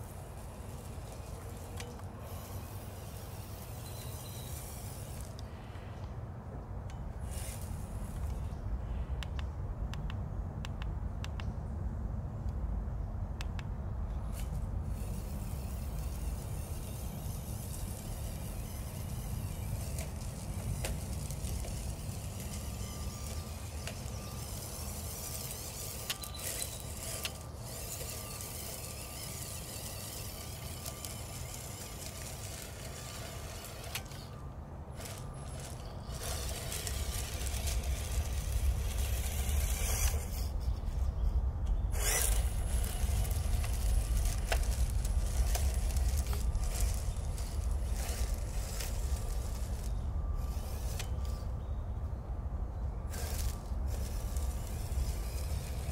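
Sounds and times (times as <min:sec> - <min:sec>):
small electric motor whine: 0:00.0 - 0:11.4, 0:13.4 - 0:55.9
tyres clicking on pebbles: 0:14.4 - 0:40.6, 0:41.9 - 0:51.3.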